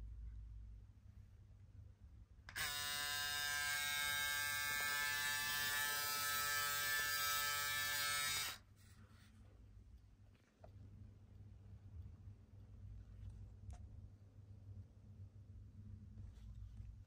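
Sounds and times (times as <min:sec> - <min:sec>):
electric shaver buzzing: 0:02.5 - 0:08.6.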